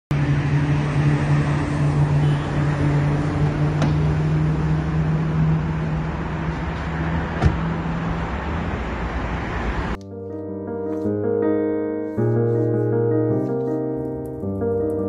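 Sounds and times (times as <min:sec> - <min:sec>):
vehicle engine hum: 0:00.1 - 0:10.0.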